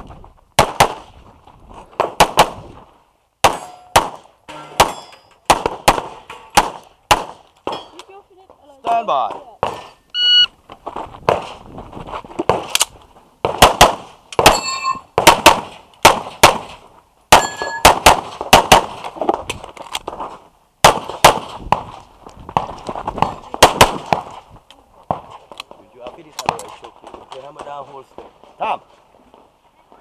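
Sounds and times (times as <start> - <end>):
rapid handgun fire: 0.6 - 1.1, 2.0 - 2.6, 3.4 - 4.2, 5.5 - 7.4, 13.4 - 14.6, 15.2 - 19.0, 20.8 - 21.6, 23.6 - 24.3
bullets ringing on steel plates: 3.5 - 5.4, 14.5 - 15.1, 17.3 - 17.9.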